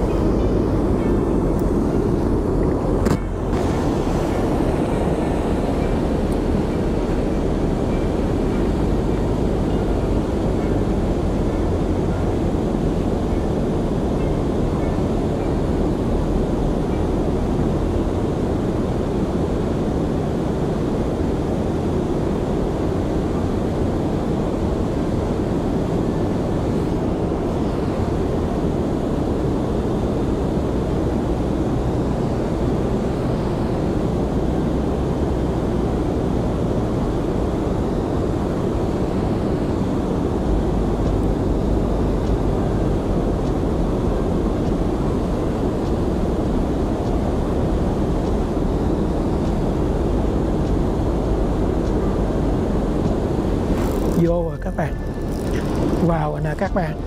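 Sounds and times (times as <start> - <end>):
wind: 0.0 - 57.0
moving water around boat: 2.4 - 10.2, 53.4 - 57.0.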